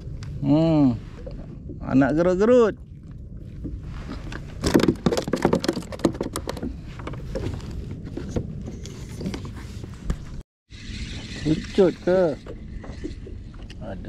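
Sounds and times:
steady low rumble: 0.0 - 4.6
fishing tackle clicks and knocks: 4.3 - 7.5.

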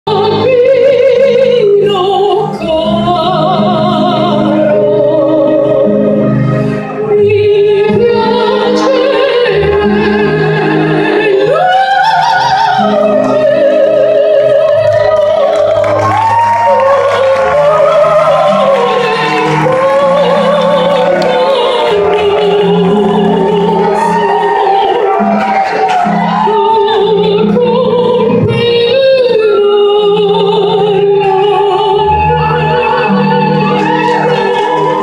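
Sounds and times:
instrumental accompaniment: 0.1 - 35.0.

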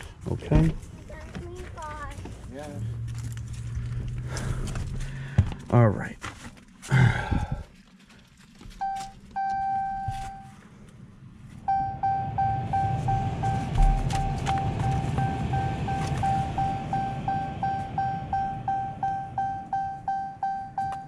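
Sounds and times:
low hum: 6.9 - 21.0
car dashboard warning chime: 8.8 - 10.6, 11.7 - 21.0.

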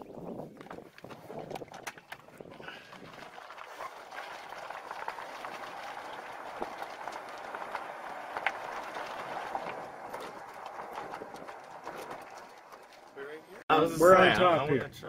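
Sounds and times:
golf cart tyres rushing: 0.0 - 14.1
cart rattling and ticking: 3.6 - 13.6.

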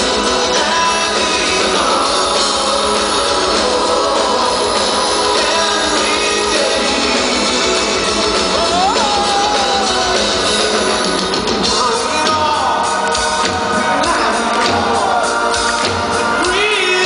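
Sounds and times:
man singing long notes: 0.0 - 10.9
live metal band playing: 0.0 - 17.0.

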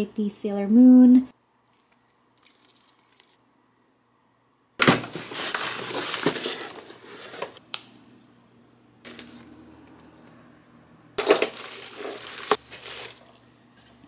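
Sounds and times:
keys clinking: 1.7 - 3.4
paper rustling: 4.9 - 7.6, 11.5 - 13.4.

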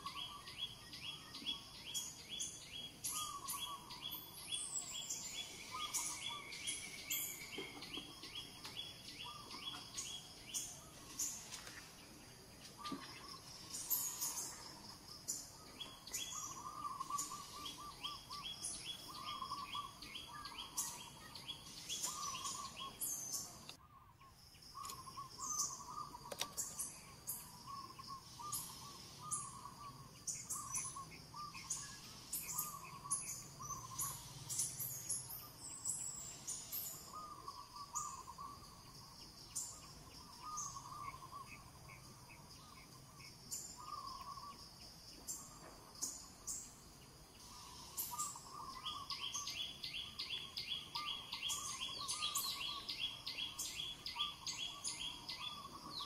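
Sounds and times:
birds chirping and calling: 0.0 - 56.0
bird warbling call: 3.0 - 8.1, 15.8 - 24.1, 24.8 - 35.3, 36.5 - 38.6, 47.4 - 56.0.

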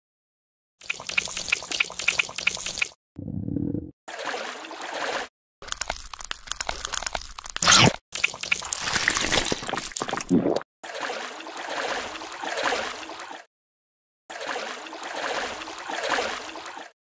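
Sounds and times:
loud crunchy sound: 5.6 - 8.0, 8.6 - 10.6.

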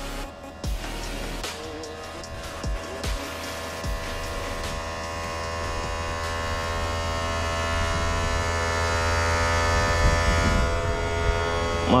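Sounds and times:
electric pump motor running: 0.0 - 12.0.

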